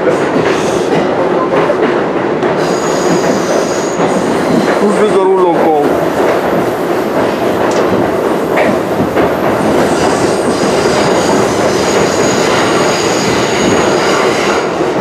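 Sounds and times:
subway train rumble: 0:00.0 - 0:15.0.

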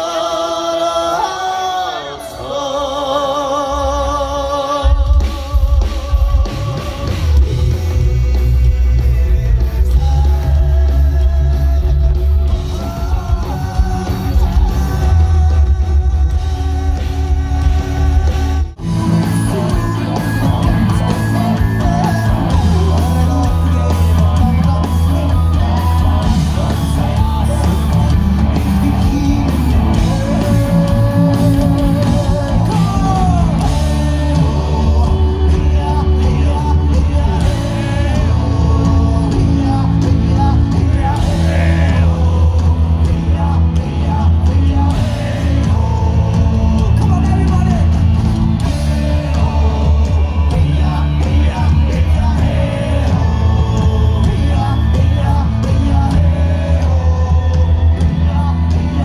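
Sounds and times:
metal band playing live: 0:00.0 - 0:59.0.

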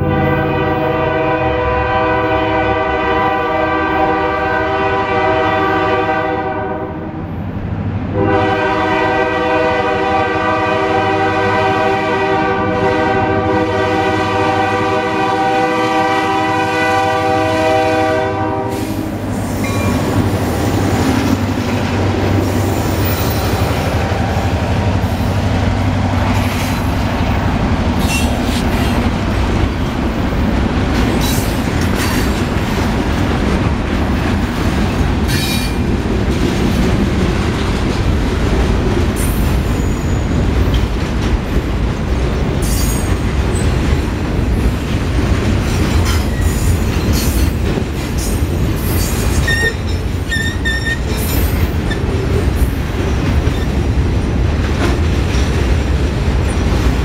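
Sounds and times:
locomotive horn blasts: 0:00.0 - 0:07.0, 0:08.1 - 0:19.1
train wheels rumbling and clattering: 0:00.0 - 0:57.0.

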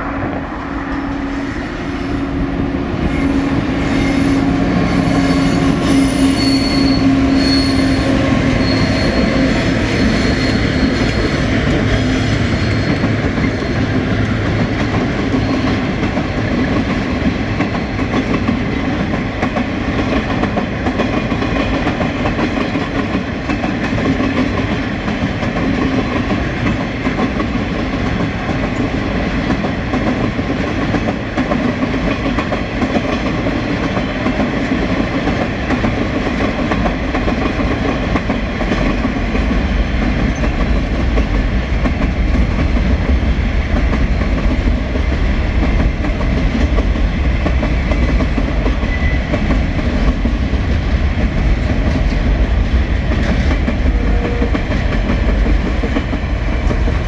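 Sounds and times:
diesel locomotive engine drone: 0:00.0 - 0:57.0
train wheels clattering on track: 0:00.4 - 0:57.0
high wheel squeal: 0:03.1 - 0:11.5.

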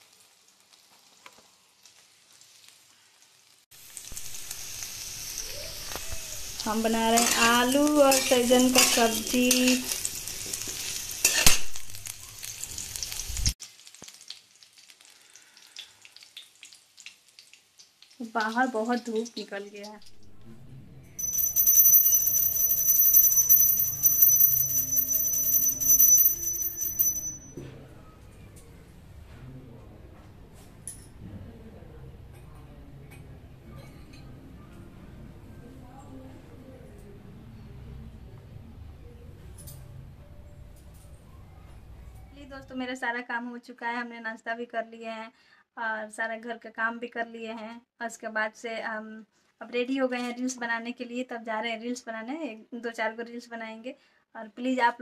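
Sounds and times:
food sizzling in oil: 0:00.0 - 0:20.2
brass hand bell ringing: 0:21.2 - 0:27.5.

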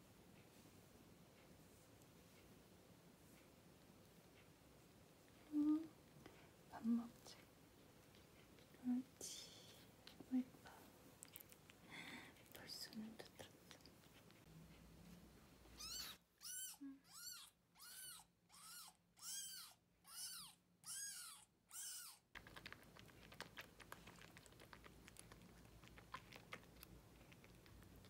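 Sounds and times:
kitten meowing: 0:15.8 - 0:22.2.

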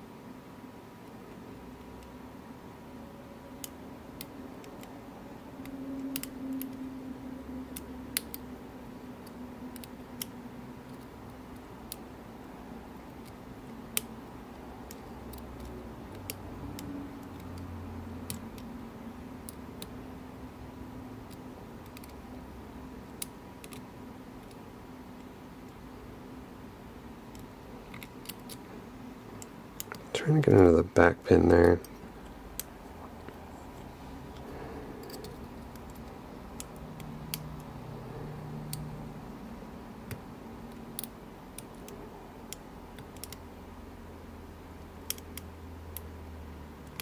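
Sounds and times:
faint steady hum: 0:00.0 - 0:47.0
lock pick clicking and scraping: 0:27.3 - 0:28.7, 0:33.7 - 0:37.8, 0:40.1 - 0:43.4, 0:45.0 - 0:46.1.

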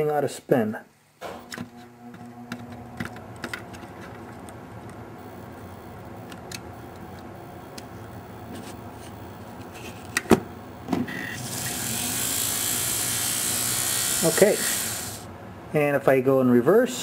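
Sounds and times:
model train motor whirring: 0:11.4 - 0:15.3.

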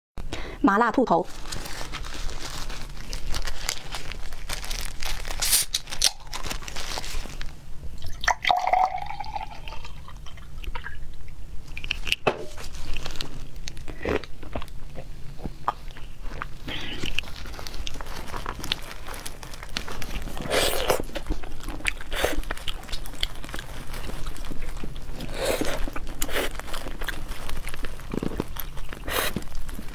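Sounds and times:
plastic gloves rustling: 0:00.9 - 0:09.6, 0:11.9 - 0:14.0, 0:15.1 - 0:29.9
milk pouring into a glass: 0:08.0 - 0:11.0.

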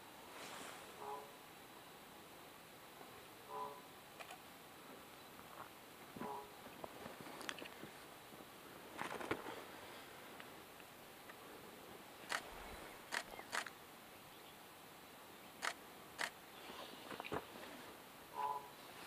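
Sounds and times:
sharp clicks: 0:04.2 - 0:04.4, 0:12.3 - 0:12.5, 0:13.1 - 0:13.7, 0:15.6 - 0:16.4
bird wings rustling: 0:08.9 - 0:10.0.

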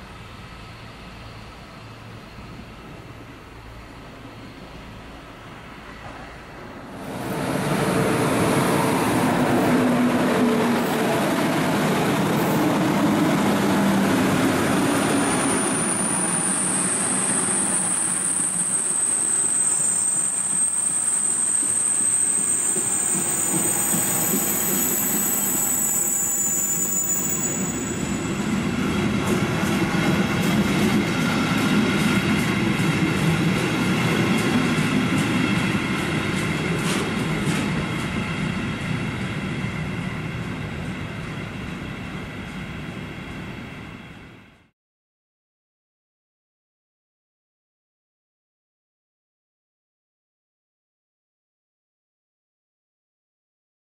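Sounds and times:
train wheels rumbling on rails: 0:00.0 - 0:44.7
high wheel squeal: 0:14.9 - 0:28.8.

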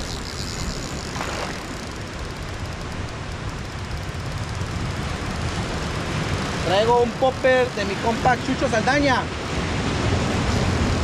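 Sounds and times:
surf breaking on rocky shore: 0:03.2 - 0:11.0.

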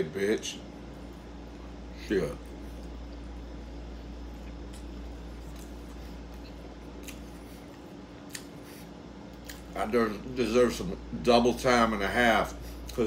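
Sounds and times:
low background hum: 0:00.0 - 0:13.0
person chewing food: 0:02.4 - 0:09.8.

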